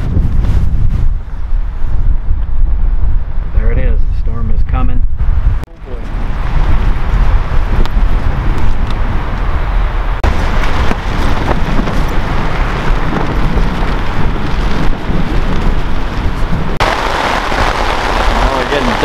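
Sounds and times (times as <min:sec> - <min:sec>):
nylon tent walls flapping: 0:00.0 - 0:01.9, 0:10.2 - 0:19.0
wind buffeting a tent: 0:00.0 - 0:19.0
wind rumble on microphone: 0:00.0 - 0:19.0
rain hitting tent fly: 0:05.9 - 0:19.0.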